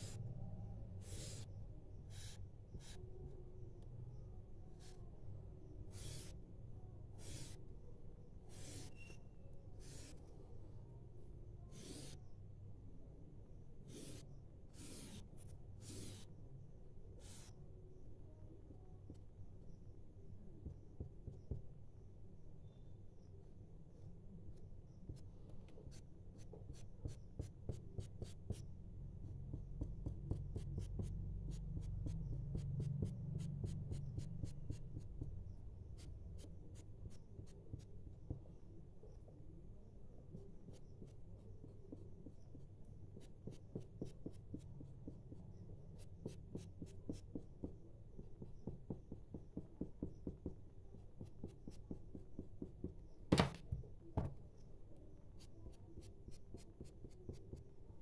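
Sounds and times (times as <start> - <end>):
marker tapping on paper: 29.5 - 35.3, 48.4 - 50.6, 51.2 - 54.4.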